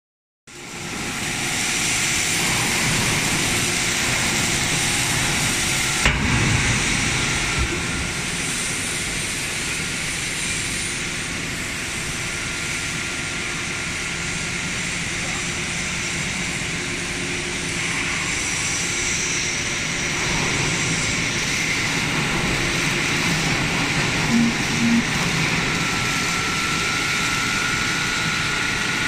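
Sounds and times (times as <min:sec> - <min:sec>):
hydraulic unit hiss and hum: 0:00.6 - 0:23.2
sharp metal clunk: 0:06.0 - 0:06.8.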